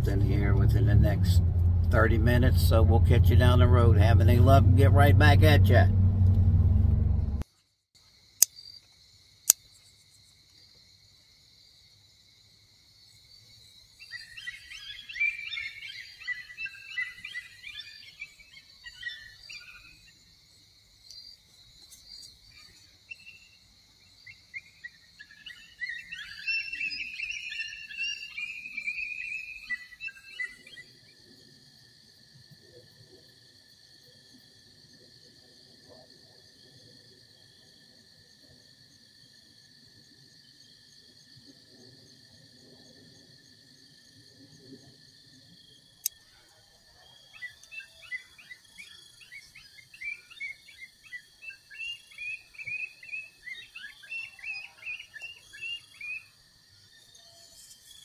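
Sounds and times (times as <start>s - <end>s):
insect trill: 7.5s - 58.0s.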